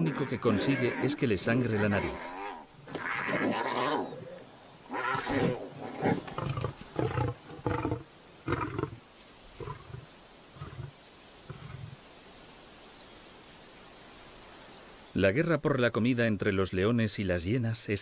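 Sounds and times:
lion roaring: 0.0 - 8.9.

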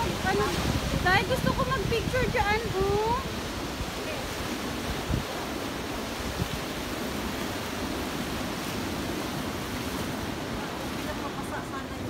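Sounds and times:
wind thump on microphone: 0.0 - 3.2
waves breaking on beach: 0.0 - 12.0.

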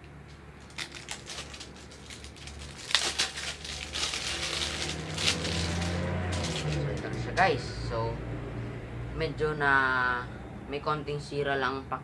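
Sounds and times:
plastic packaging crinkling: 0.6 - 6.9.

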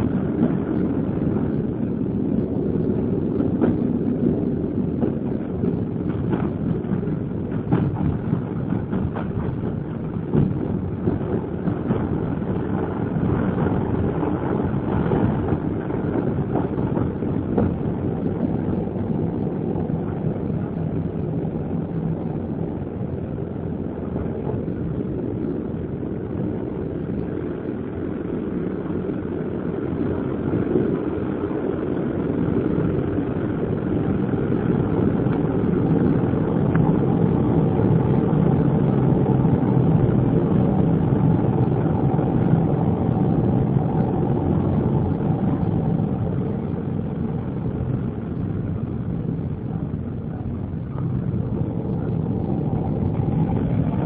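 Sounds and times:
clicks and knocks of wheels: 0.0 - 23.2
train wheels rumbling on rail: 0.0 - 54.0.

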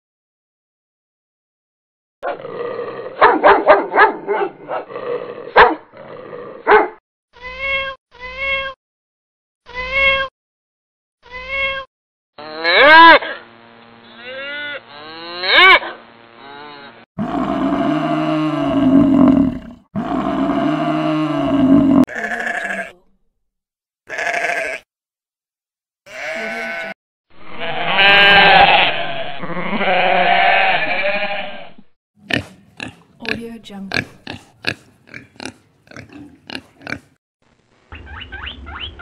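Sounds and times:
cow mooing: 12.4 - 13.2, 16.4 - 23.0, 24.1 - 24.8, 26.1 - 27.0, 27.6 - 33.4
sheep bleating: 12.4 - 13.2, 22.0 - 23.0, 24.1 - 24.9, 26.1 - 34.1
goat bleating: 22.1 - 23.0, 24.1 - 24.8, 26.1 - 27.0, 27.6 - 31.7.

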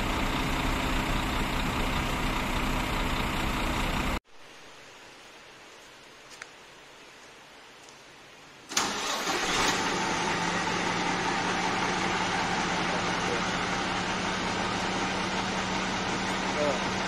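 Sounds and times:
diesel engine starting and idling: 0.0 - 4.2, 8.7 - 17.0.

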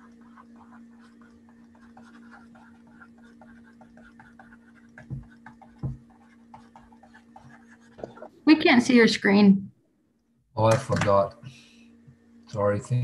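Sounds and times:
light scratching and ticking: 0.0 - 8.4
steady low hum: 0.0 - 13.0.

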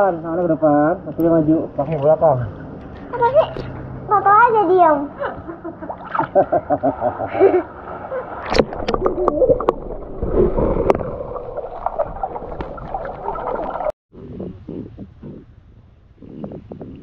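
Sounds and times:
water sloshing and gurgling: 5.8 - 14.0
sharp splashes: 5.9 - 13.9.

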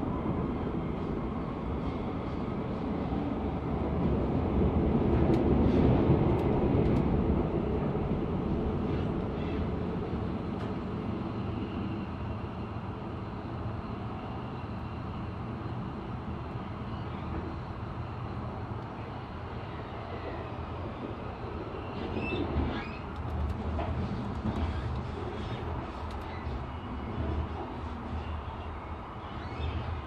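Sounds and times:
train wheels rumbling on rails: 0.0 - 13.7, 18.4 - 30.0
brief high squeal: 22.0 - 23.1, 29.2 - 29.9.

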